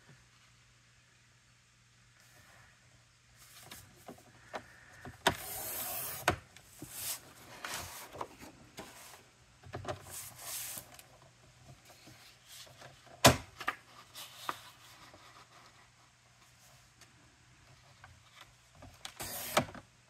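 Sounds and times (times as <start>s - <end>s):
paper rustling: 13.6s - 16.6s.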